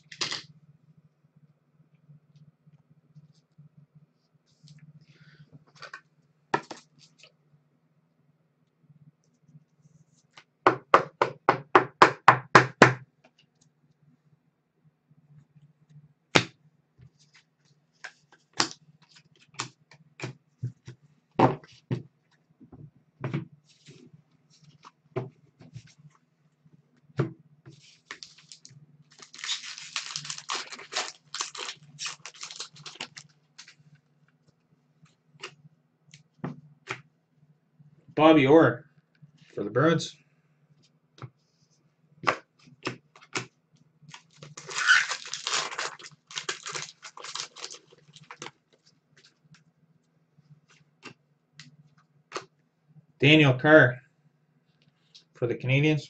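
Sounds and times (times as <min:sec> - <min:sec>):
cards rustling and clicking: 0:27.7 - 0:33.8, 0:44.1 - 0:49.4.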